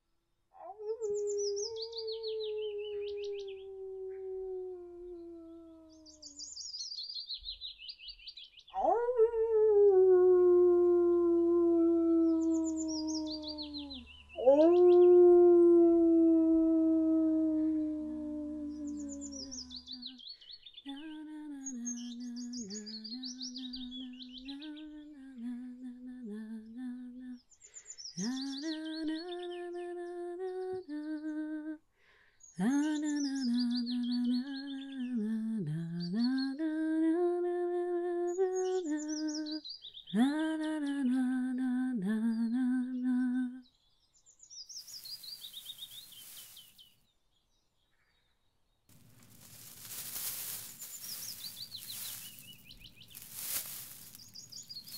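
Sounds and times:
woman humming a slow tune: 0:00.6 - 0:06.1, 0:08.8 - 0:20.3, 0:20.9 - 0:27.4, 0:28.2 - 0:31.8, 0:32.6 - 0:43.7
birds chirping in trills: 0:12.4 - 0:15.1, 0:18.8 - 0:20.9, 0:44.6 - 0:46.9, 0:49.3 - 0:54.9.

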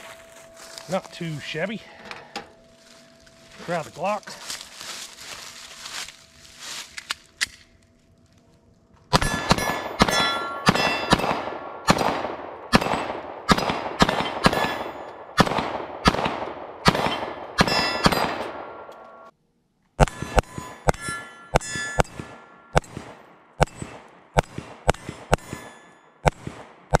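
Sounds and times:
steel target ringing: 0:09.1 - 0:11.4, 0:13.5 - 0:15.2, 0:16.9 - 0:19.3, 0:20.0 - 0:23.0, 0:24.9 - 0:26.2
pistol shots: 0:09.1 - 0:18.9, 0:21.6 - 0:27.0.

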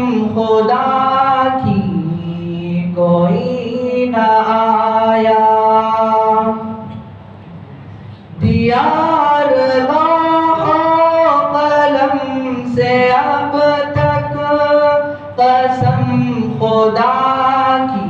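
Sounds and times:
man singing devotional song: 0:00.0 - 0:06.8, 0:08.4 - 0:18.0.

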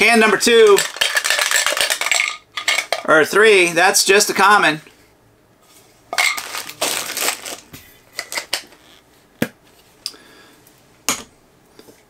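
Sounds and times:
plastic wrapping crinkling: 0:06.2 - 0:09.0.

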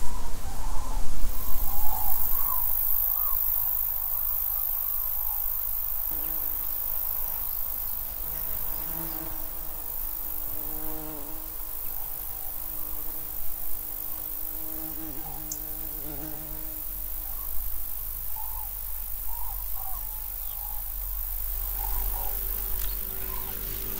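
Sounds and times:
crickets chirring: 0:00.1 - 0:23.9
flying insect buzzing: 0:01.4 - 0:23.9.

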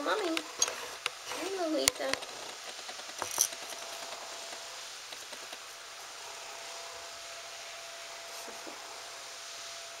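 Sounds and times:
background hiss: 0:00.0 - 0:10.0
faint whine: 0:03.2 - 0:10.0.

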